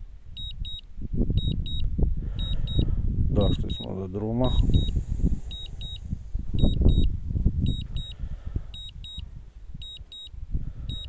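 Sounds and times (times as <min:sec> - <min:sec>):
high double warning beeps: 0:00.4 - 0:00.8, 0:01.4 - 0:11.0
low rumbling noise: 0:01.1 - 0:09.9.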